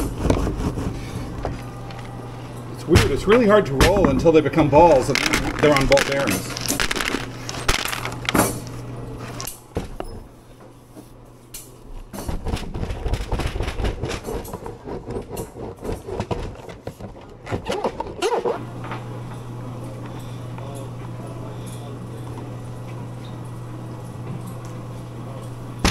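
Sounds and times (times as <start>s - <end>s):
steady low hum: 0.0s - 13.0s, 18.5s - 25.9s.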